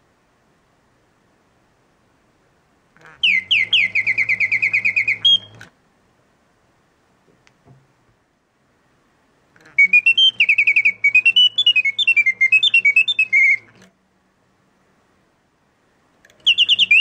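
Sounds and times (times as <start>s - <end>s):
faint low hum: 0.0s - 17.0s
mechanical birdsong whistle: 3.0s - 5.7s, 9.6s - 13.9s, 16.3s - 17.0s.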